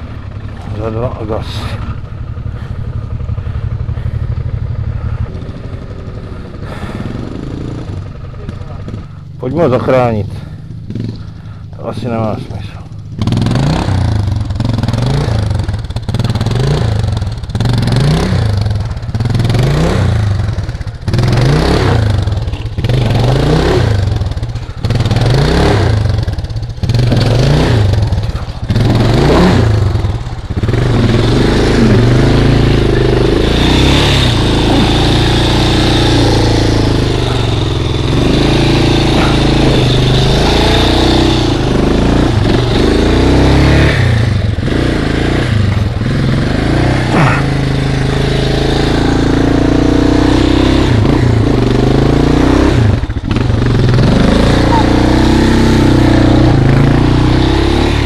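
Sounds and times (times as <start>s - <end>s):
off-road motorcycle engine revving: 0.0s - 58.0s.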